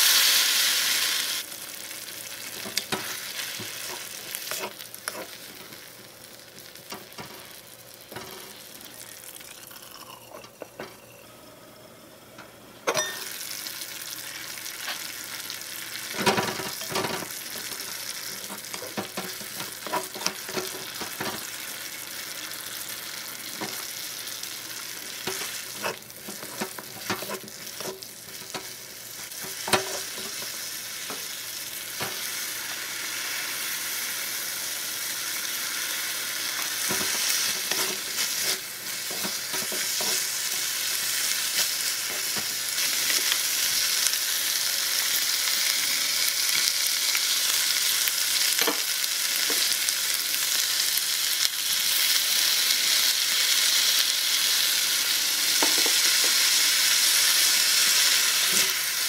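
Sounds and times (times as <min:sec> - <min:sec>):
vegetables sizzling in a wok: 0:00.0 - 0:59.0
wooden spatula scraping a pan: 0:25.3 - 0:28.5, 0:36.8 - 0:40.7.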